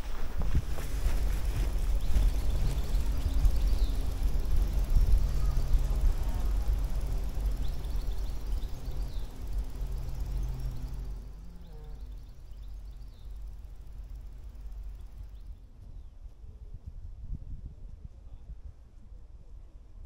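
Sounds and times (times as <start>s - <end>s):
wind buffeting microphone: 0.0s - 20.0s
faint bird chirps: 0.8s - 16.1s.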